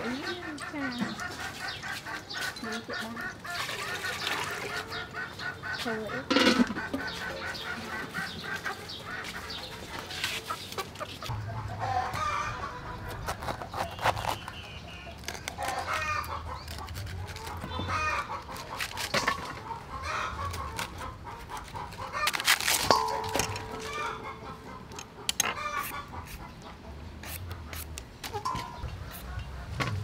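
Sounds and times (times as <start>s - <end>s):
chickens clucking: 0.0s - 13.8s, 14.8s - 30.0s
knife cutting cabbage: 13.0s - 19.4s, 20.4s - 23.8s, 27.2s - 28.4s.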